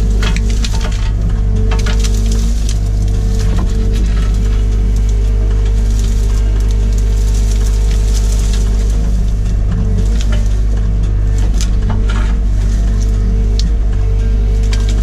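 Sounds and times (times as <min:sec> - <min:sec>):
branches cracking and snapping: 0:00.0 - 0:15.0
excavator diesel engine: 0:00.0 - 0:15.0.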